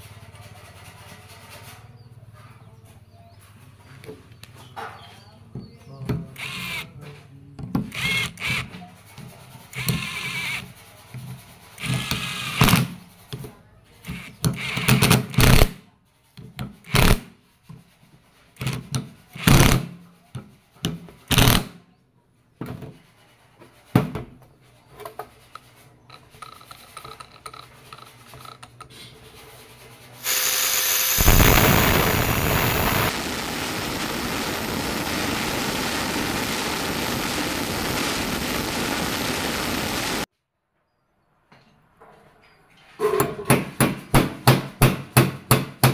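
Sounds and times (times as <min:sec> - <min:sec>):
cordless drill driving bolts: 0:30.2 - 0:33.1
angle grinder cutting metal: 0:30.2 - 0:40.3.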